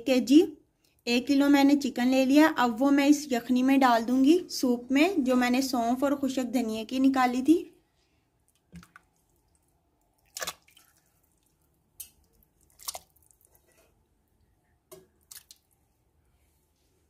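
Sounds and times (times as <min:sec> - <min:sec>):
chicken splashing into broth: 0:08.6 - 0:13.6, 0:14.9 - 0:15.8.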